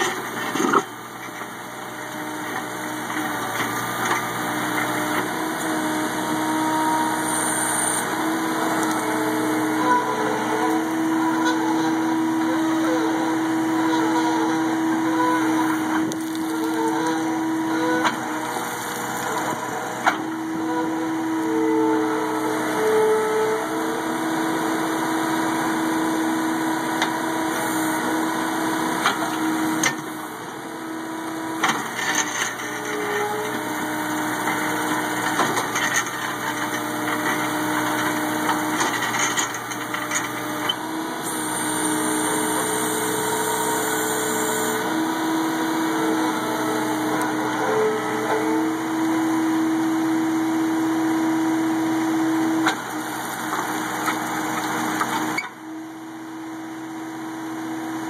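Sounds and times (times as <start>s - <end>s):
loader engine and auger drive: 0.0s - 58.0s.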